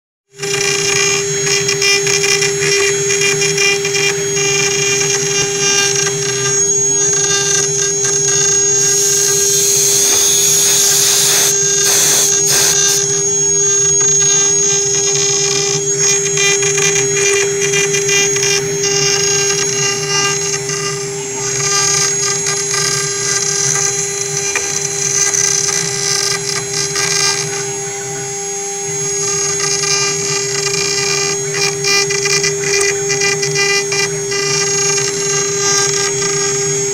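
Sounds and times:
cnc router spindle whine: 0:00.3 - 0:36.9
router bit rasping into wood: 0:00.4 - 0:36.8.

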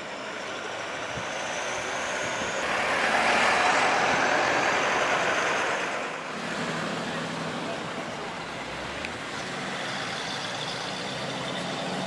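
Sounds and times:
vehicle passing by: 0:01.6 - 0:08.0.

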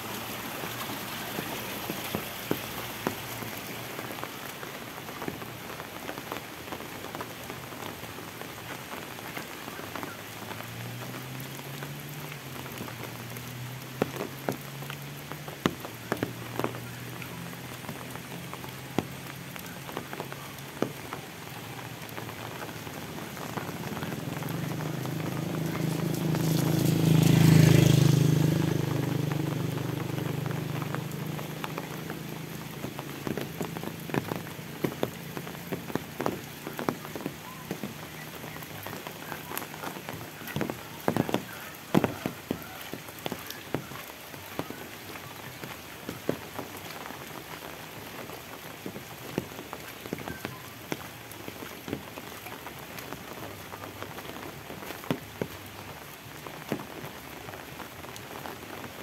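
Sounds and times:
heavy raindrops ticking: 0:00.0 - 0:59.0
motorbike engine hum: 0:22.1 - 0:43.0.

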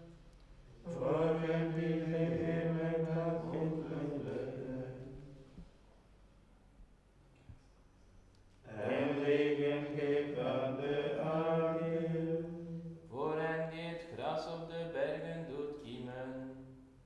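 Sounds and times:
men chanting in unison: 0:00.8 - 0:05.1, 0:08.7 - 0:16.5.

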